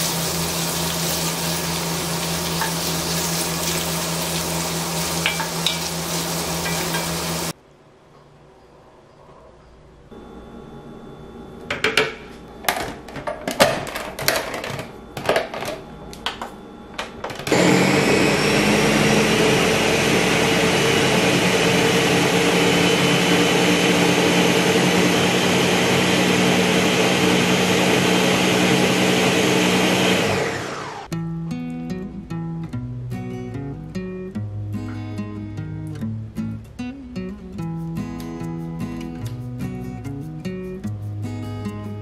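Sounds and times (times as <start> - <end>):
blender motor grinding: 17.4 - 31.1.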